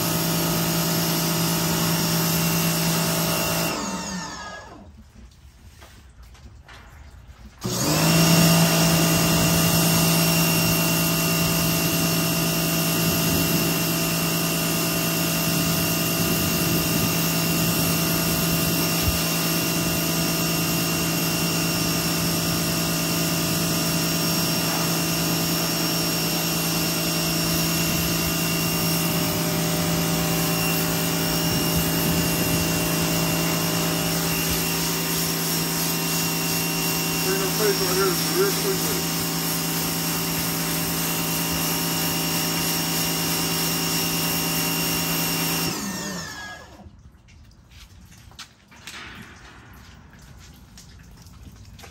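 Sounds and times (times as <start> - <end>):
pressure washer motor hum: 0.0 - 51.9
water spray hissing: 16.2 - 44.0.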